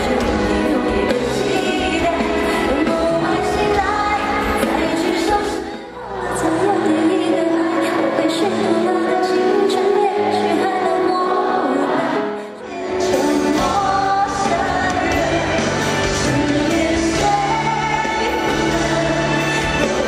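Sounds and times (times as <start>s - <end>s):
band accompaniment: 0.0s - 5.7s, 12.7s - 20.0s
woman singing pop ballad: 0.0s - 20.0s.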